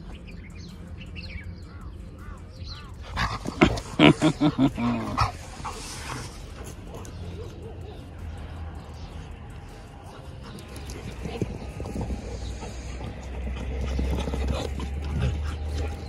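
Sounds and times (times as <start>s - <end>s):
faint birdsong chirps: 0.0s - 16.0s
dog barking and growling: 2.9s - 16.0s
dogs scuffling: 10.0s - 16.0s.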